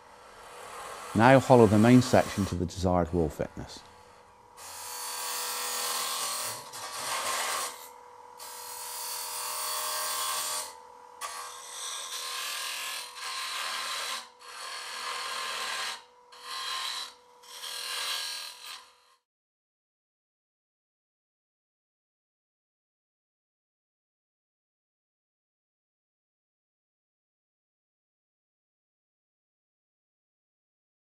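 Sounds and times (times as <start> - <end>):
lathe tool scraping wood: 0.2 - 19.2.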